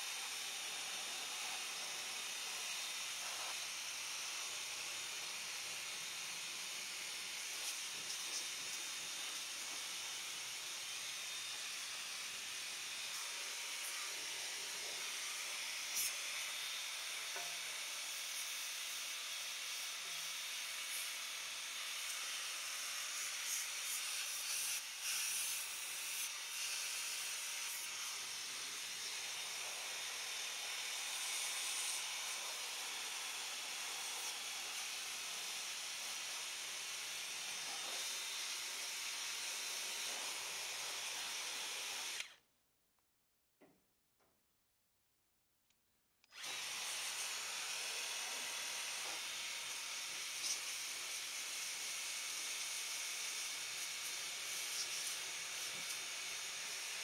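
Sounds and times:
pressure washer spraying water: 54.5 - 55.7.

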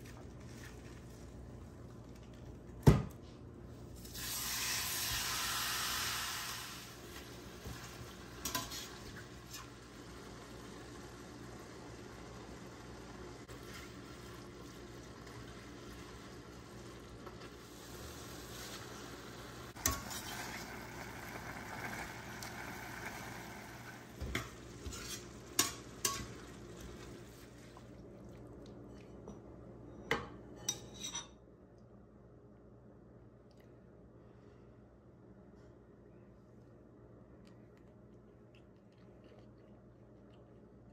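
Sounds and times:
food sizzling in a frying pan: 4.0 - 27.6.

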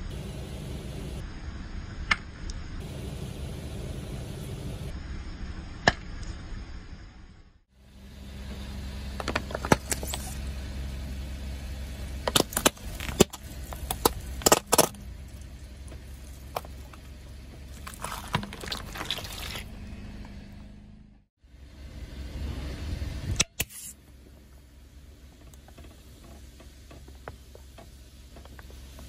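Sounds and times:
car engine hum: 0.0 - 23.4, 24.0 - 29.0
wet crackling squelch: 12.3 - 19.8.

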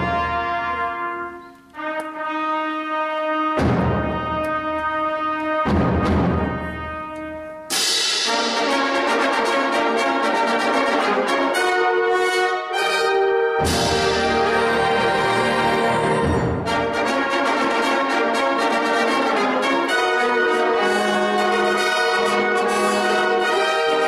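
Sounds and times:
wind band playing: 0.0 - 24.0
percussion crashes: 3.6 - 4.4, 5.6 - 6.9, 7.7 - 9.3, 13.6 - 17.1.

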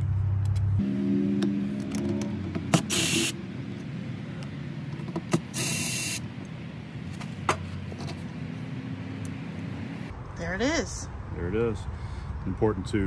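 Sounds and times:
cordless drill whirring: 2.8 - 3.4, 5.5 - 6.2.

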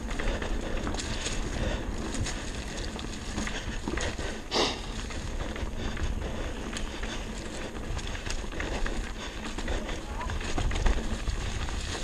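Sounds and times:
bike rattling and knocking: 0.0 - 12.0
tyres rolling over dirt and leaves: 0.0 - 12.0
wind noise on microphone: 0.0 - 12.0.

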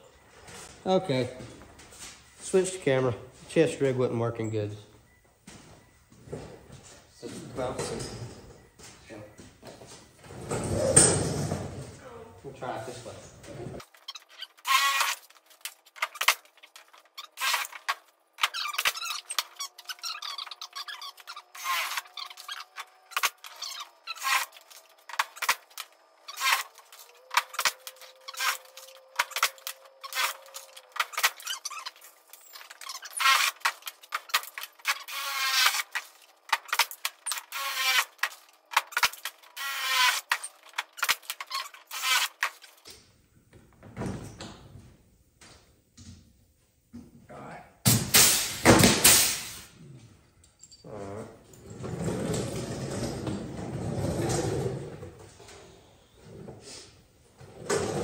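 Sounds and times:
pneumatic rivet gun: 14.7 - 15.2, 17.4 - 19.4, 20.2 - 31.6, 33.0 - 42.6, 47.9 - 49.7.

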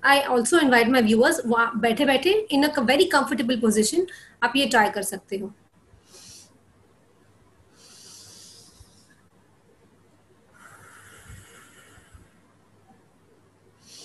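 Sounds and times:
woman breathing in: 6.0 - 6.6, 7.7 - 9.2, 10.5 - 12.5, 13.8 - 14.0.

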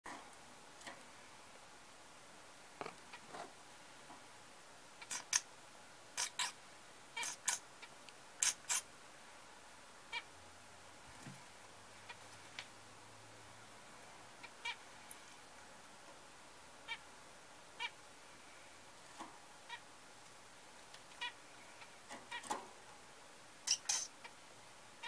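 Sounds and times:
zebra finch chirps: 5.0 - 5.5, 6.2 - 6.6, 7.2 - 8.8, 14.4 - 14.8, 16.8 - 17.1, 17.8 - 18.0, 21.2 - 22.6, 23.6 - 24.4.

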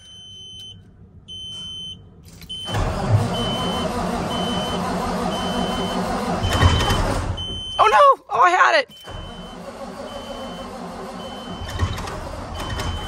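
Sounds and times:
starter cranking diesel engine: 2.6 - 7.6, 9.0 - 13.0.

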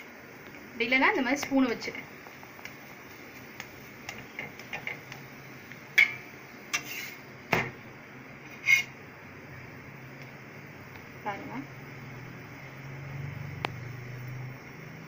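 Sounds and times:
metal spatula clinking on griddle: 6.0 - 7.2.

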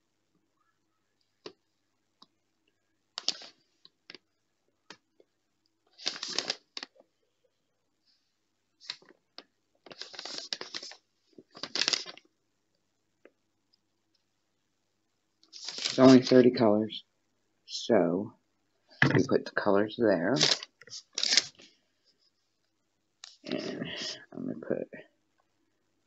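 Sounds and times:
paper sheet rustling: 3.2 - 3.6, 5.9 - 6.9, 9.8 - 12.2, 15.5 - 16.5, 20.4 - 21.7.

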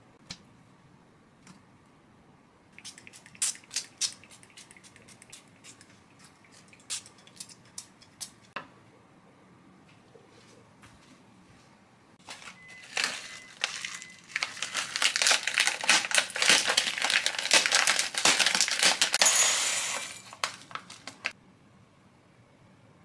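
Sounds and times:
plastic packet crinkling: 12.2 - 21.4
granola crushed by hand: 12.9 - 19.2.

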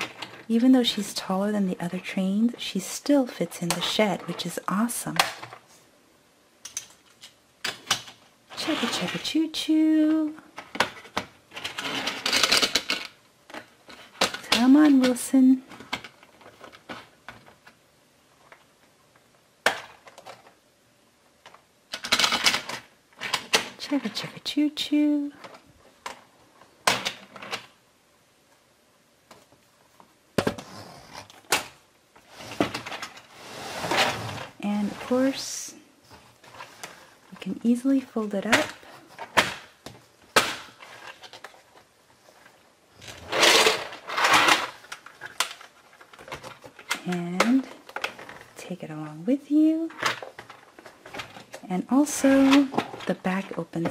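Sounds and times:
plastic parts rattling scrapes: 6.8 - 9.4, 10.6 - 17.6, 32.2 - 37.5, 40.6 - 48.6, 49.9 - 53.9.

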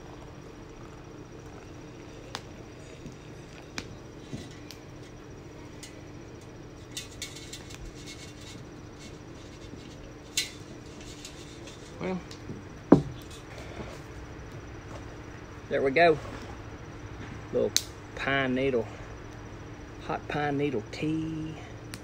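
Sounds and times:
steady low hum: 0.0 - 22.0
small crackles: 0.6 - 12.6.

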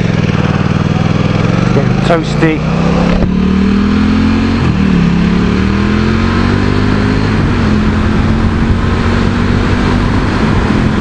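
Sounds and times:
motorcycle engine accelerating: 0.0 - 11.0
wind rush: 0.3 - 11.0.

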